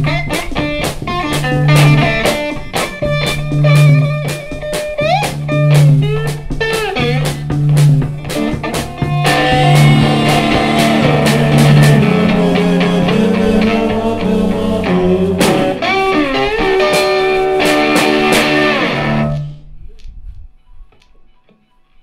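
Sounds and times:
electric slide guitar: 0.0 - 19.6
stomped bass drum beat: 3.0 - 15.8.

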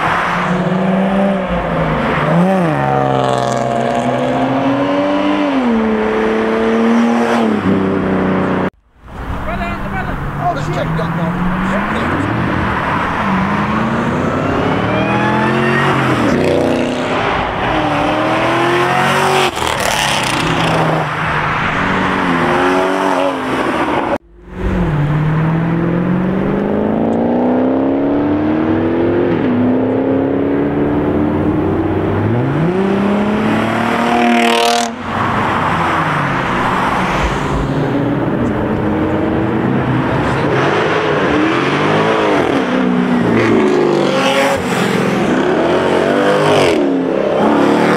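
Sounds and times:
car engine revving hard: 11.1 - 21.1, 21.8 - 47.9.

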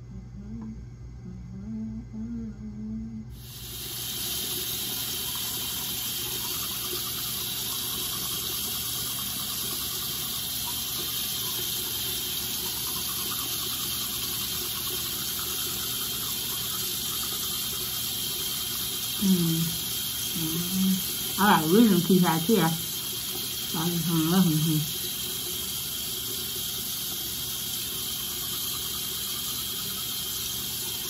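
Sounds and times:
toothbrush brushing teeth: 4.0 - 25.6.

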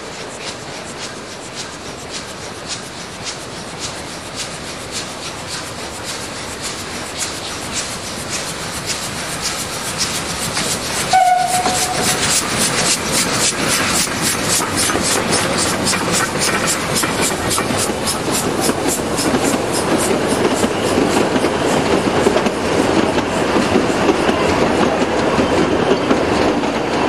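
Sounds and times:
steam locomotive exhaust chuffing: 0.0 - 27.0
steam whistle blast: 11.1 - 12.2.

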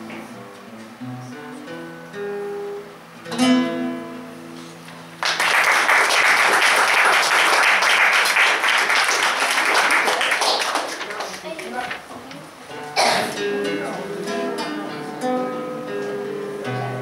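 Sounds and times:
classical guitar playing: 0.0 - 5.2, 11.4 - 17.0
audience applause: 5.2 - 11.8.

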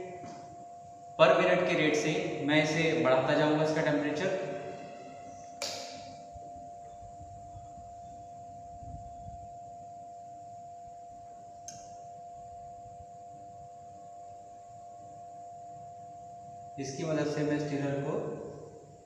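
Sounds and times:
high-pitched electrical whine: 0.0 - 19.0
sharp click: 5.6 - 6.1.

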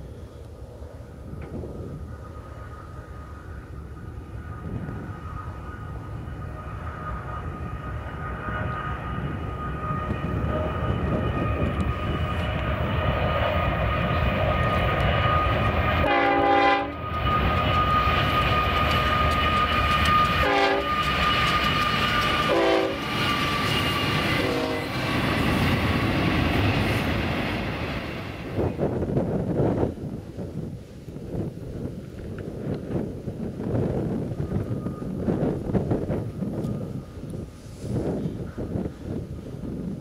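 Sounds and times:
train cars rumbling: 0.0 - 40.0
high squeal of train wheels: 1.7 - 28.9, 33.7 - 40.0
train horn blasts: 4.6 - 12.9, 13.6 - 25.2.

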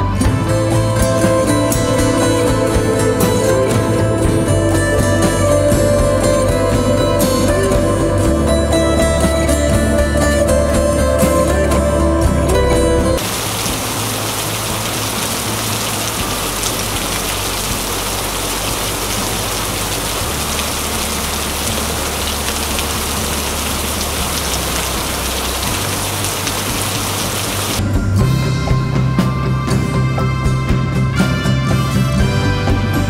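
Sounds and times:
music: 0.0 - 33.0
waterfall splashing onto rock: 13.2 - 27.8.

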